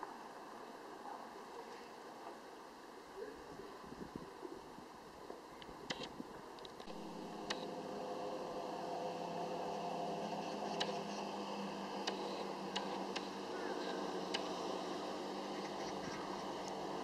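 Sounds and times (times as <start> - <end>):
wind turbines whirring: 2.3 - 17.0
sharp ticks: 5.6 - 7.7, 10.7 - 11.2, 11.9 - 16.9.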